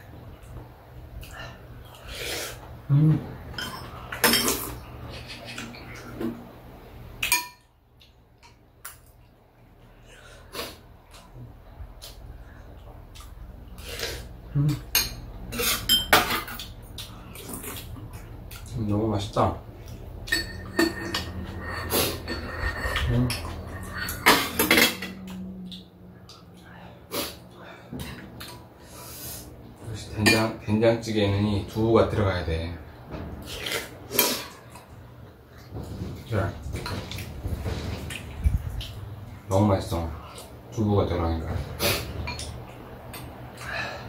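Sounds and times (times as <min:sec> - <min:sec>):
low background hum: 0:00.0 - 0:44.0
breathing and sniffing while eating: 0:01.2 - 0:02.7, 0:10.0 - 0:10.9, 0:26.5 - 0:28.0, 0:28.7 - 0:29.6
utensils clinking against ceramic bowls: 0:03.5 - 0:05.8, 0:14.7 - 0:16.8, 0:20.2 - 0:25.9, 0:30.2 - 0:30.6, 0:42.2 - 0:43.7.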